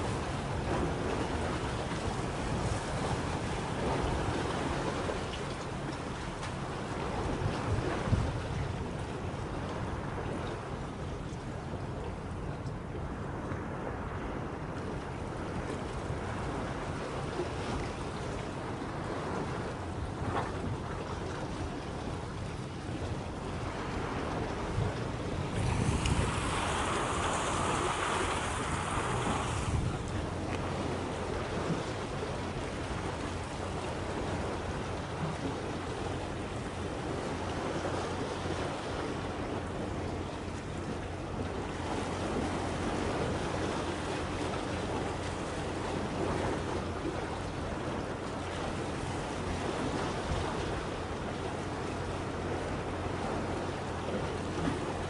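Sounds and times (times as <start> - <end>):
sea washing against breakwater: 0.0 - 55.0
wind rushing over microphone: 15.5 - 40.0.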